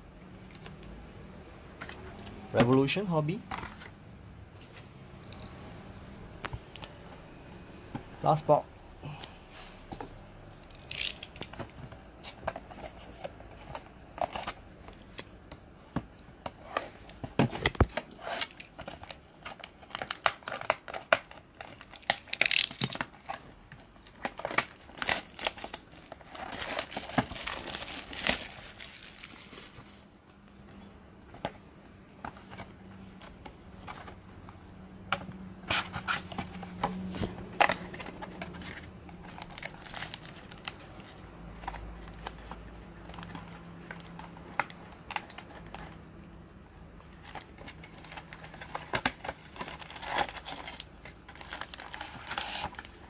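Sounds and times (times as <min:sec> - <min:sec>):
box handling clicks and scratches: 0:03.4 - 0:04.0, 0:09.9 - 0:30.0, 0:31.3 - 0:46.0, 0:47.0 - 0:53.0
plastic wrap crinkling: 0:16.6 - 0:30.4, 0:35.7 - 0:46.0, 0:47.0 - 0:53.0.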